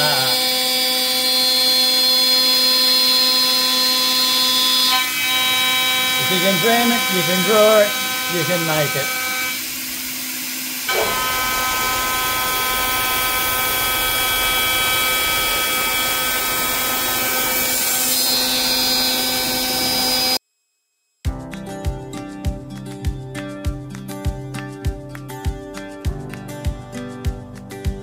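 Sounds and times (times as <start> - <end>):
metal cutting noise: 0.0 - 20.4
router spindle whine: 0.0 - 20.4.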